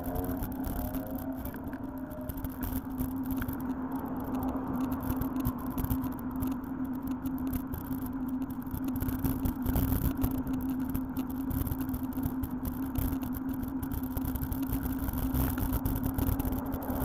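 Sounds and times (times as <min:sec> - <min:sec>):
vehicles passing: 0:00.0 - 0:08.4, 0:16.1 - 0:17.0
steady low hum: 0:00.0 - 0:17.0.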